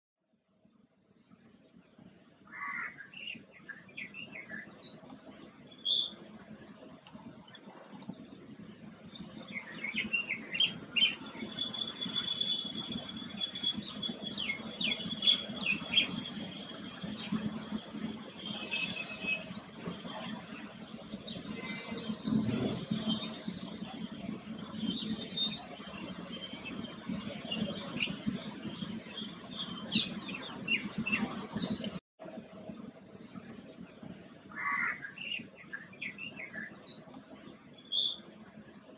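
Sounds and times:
birds chirping: 0:01.2 - 0:32.0, 0:33.2 - 0:38.9
low hum: 0:04.5 - 0:34.5.

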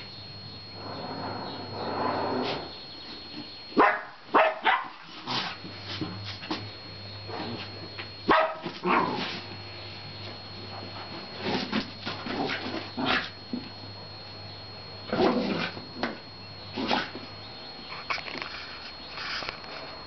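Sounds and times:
puppy barking and yipping: 0:03.8 - 0:05.0, 0:08.3 - 0:09.0.

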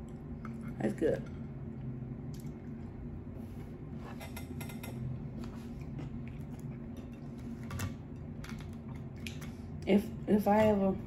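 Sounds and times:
light eating clicks and taps: 0:04.2 - 0:09.9.

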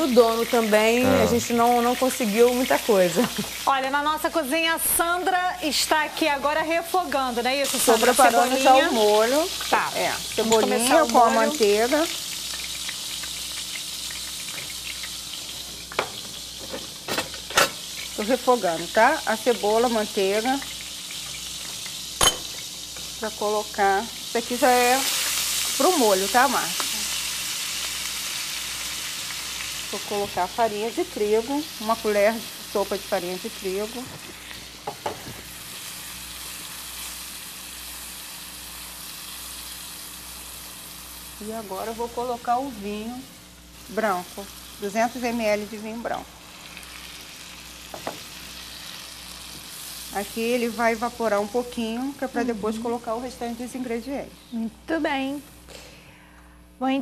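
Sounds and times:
onion sizzling in a frying pan: 0:00.0 - 0:55.7.

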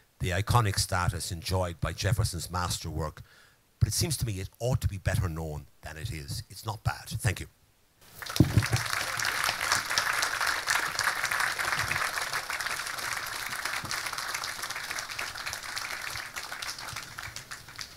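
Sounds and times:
audience applauding: 0:08.1 - 0:17.9.

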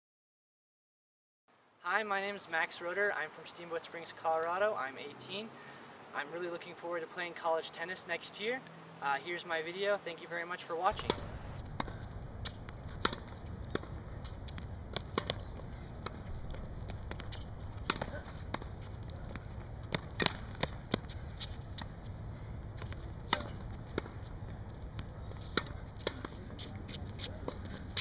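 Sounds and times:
steady low background noise: 0:01.5 - 0:28.0
tennis balls bouncing on hard court: 0:10.9 - 0:28.0
tennis balls struck by rackets: 0:10.9 - 0:28.0.

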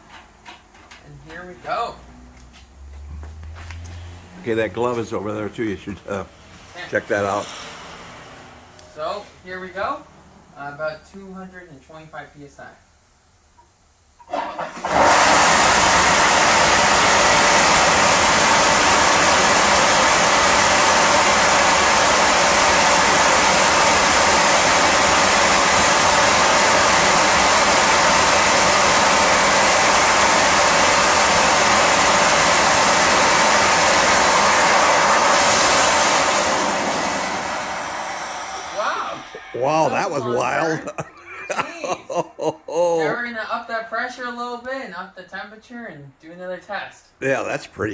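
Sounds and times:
steam rocket blasting hiss: 0:05.5 - 0:10.0, 0:14.3 - 0:42.5.

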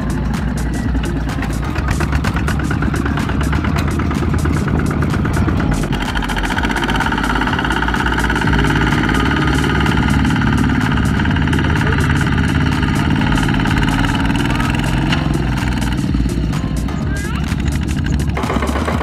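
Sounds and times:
diesel engine chugging: 0:00.0 - 0:19.0
tiller working in mud: 0:00.0 - 0:19.0.

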